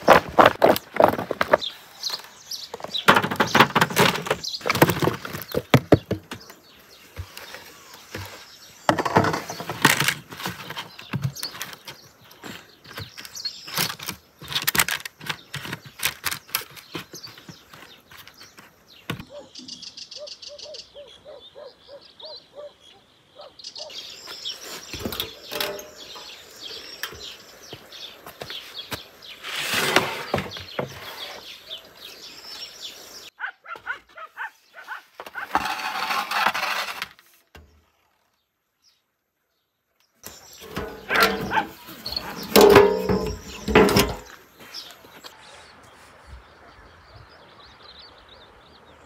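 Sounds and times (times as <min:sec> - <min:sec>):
potato slices clattering on tray: 0:40.6 - 0:44.3.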